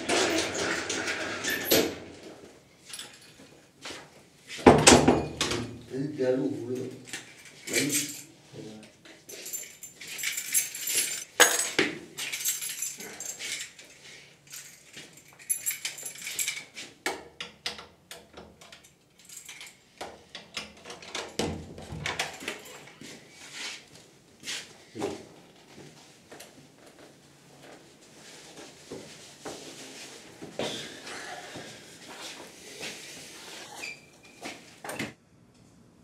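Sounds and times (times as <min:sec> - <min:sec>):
keys jangling in a door lock: 0:02.9 - 0:03.5, 0:06.8 - 0:08.3, 0:09.3 - 0:16.8, 0:18.1 - 0:21.4, 0:22.0 - 0:23.0.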